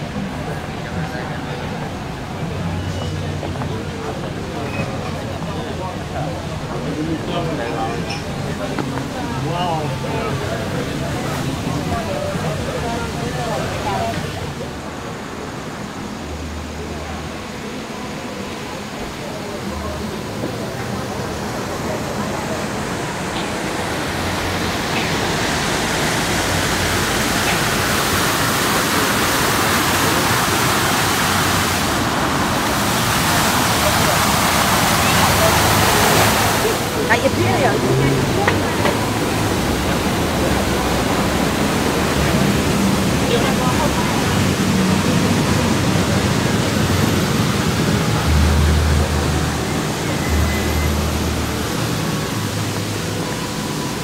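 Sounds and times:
fountain water splashing: 0.0s - 54.0s
low rumbles: 31.7s - 54.0s.

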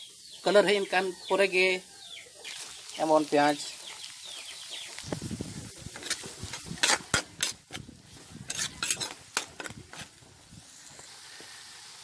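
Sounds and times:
onions frying sizzle: 0.0s - 12.0s
spatula scraping and knocking pan: 5.7s - 10.4s.

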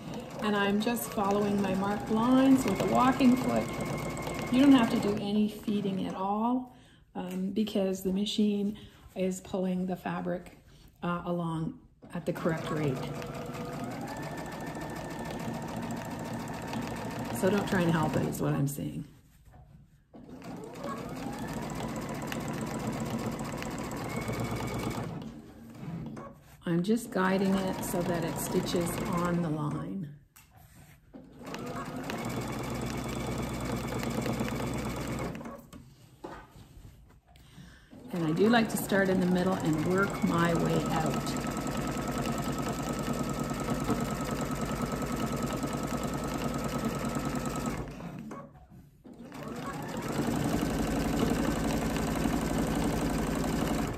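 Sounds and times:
sewing machine motor whine: 0.0s - 5.3s, 12.5s - 18.4s, 20.4s - 25.2s, 27.3s - 29.4s, 31.4s - 35.5s, 38.2s - 48.3s, 49.3s - 53.9s
sewing machine stitching: 0.0s - 6.2s, 12.0s - 18.6s, 20.1s - 29.8s, 31.2s - 35.8s, 37.9s - 53.9s.

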